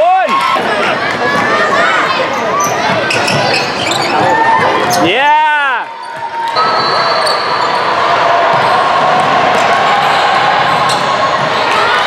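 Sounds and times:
players' voices echoing: 0:00.0 - 0:12.0
sneakers squeaking: 0:01.3 - 0:05.1, 0:05.9 - 0:08.8, 0:10.0 - 0:12.0.

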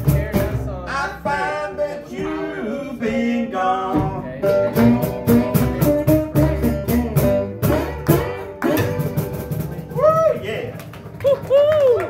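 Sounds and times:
cajon beat: 0:00.0 - 0:01.0, 0:03.9 - 0:12.0
upright bass: 0:00.0 - 0:11.7
strummed acoustic guitar: 0:03.8 - 0:09.9.

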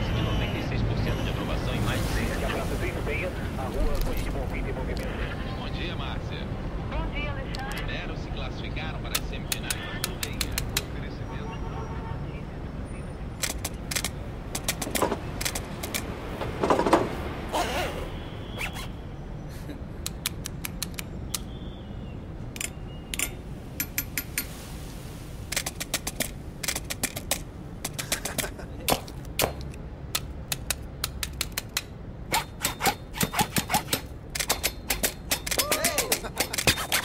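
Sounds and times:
sharp clicks and snaps: 0:09.1 - 0:10.9, 0:13.4 - 0:16.1, 0:20.0 - 0:21.5, 0:25.5 - 0:37.0.

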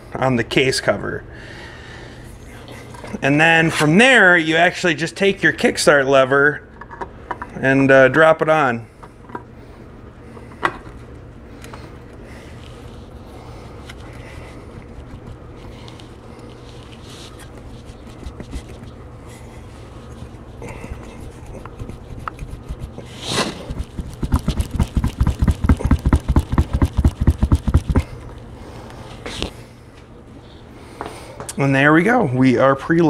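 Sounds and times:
low steady hum: 0:00.0 - 0:33.0
dull thumps: 0:22.4 - 0:28.2.

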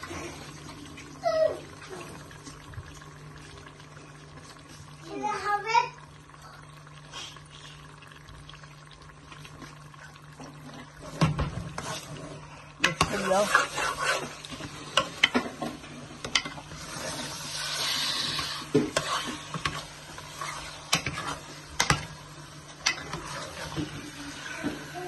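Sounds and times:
chicken sizzling in a pan: 0:00.0 - 0:25.0
spoon scraping and clacking on pan: 0:12.8 - 0:16.6, 0:18.3 - 0:22.2, 0:22.8 - 0:23.9.

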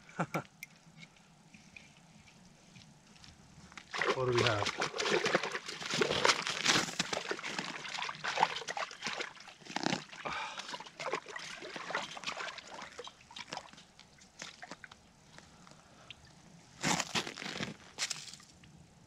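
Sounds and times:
fish splashing in water: 0:03.9 - 0:13.8.

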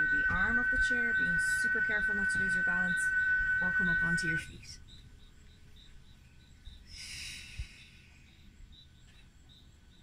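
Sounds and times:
insect chirping: 0:00.0 - 0:10.0
breathy exhale: 0:06.9 - 0:08.2.

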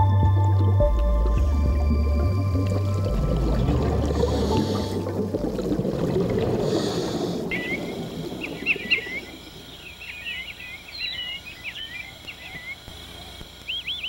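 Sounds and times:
birds chirping and whistling: 0:07.5 - 0:12.9, 0:13.6 - 0:14.0.

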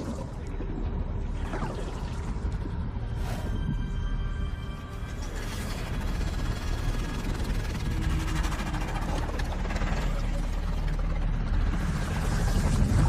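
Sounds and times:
dense steady rumbling: 0:00.0 - 0:13.0.

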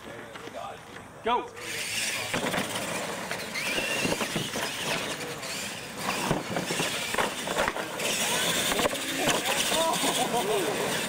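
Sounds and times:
toy truck motor whine: 0:01.6 - 0:11.0
trucks knocking over bumps: 0:02.3 - 0:11.0.

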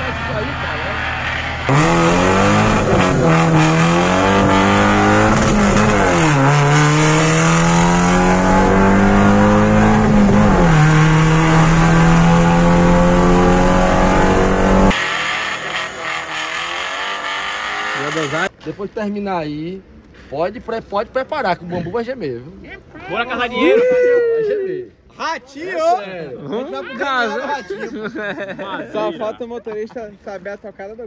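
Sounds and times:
car engine accelerating hard: 0:00.0 - 0:18.5.

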